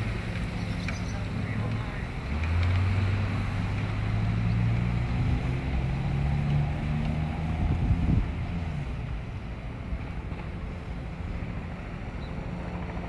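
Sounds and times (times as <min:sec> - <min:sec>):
low engine hum: 0:00.0 - 0:13.0
wind on microphone: 0:06.8 - 0:09.3.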